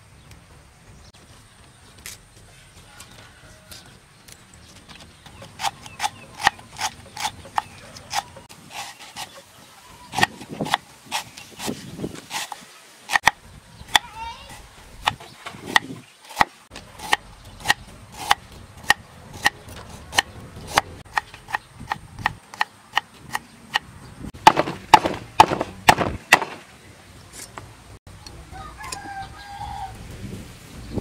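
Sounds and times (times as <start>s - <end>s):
knife chopping on wooden block: 24.4s - 26.6s.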